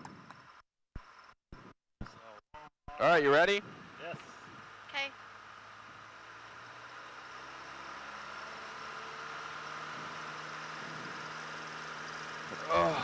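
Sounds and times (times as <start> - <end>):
propeller plane engine at full throttle: 3.5 - 13.0.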